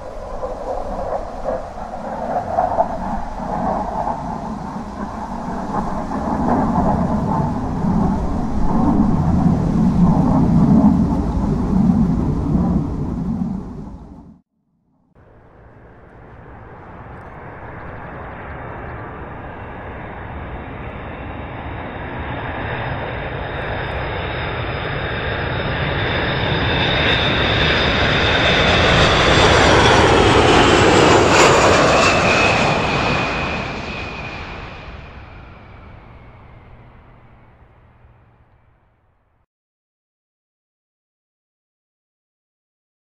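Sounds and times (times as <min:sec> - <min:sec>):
jet airliner flying past: 0:00.0 - 0:14.4, 0:15.2 - 0:39.4.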